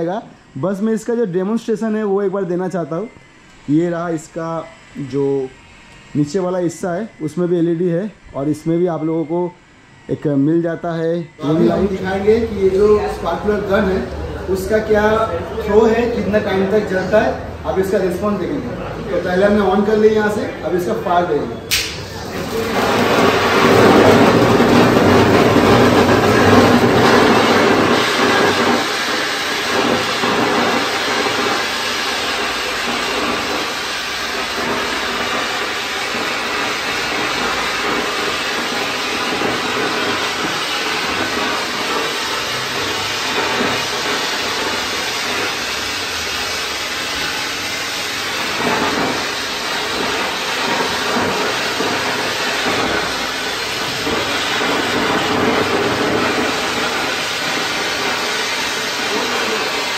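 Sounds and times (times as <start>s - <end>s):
sparkler hissing spray of sparks: 19.2s - 59.9s.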